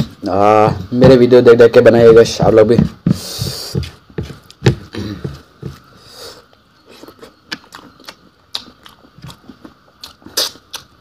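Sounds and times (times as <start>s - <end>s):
person chewing food: 6.8s - 11.0s.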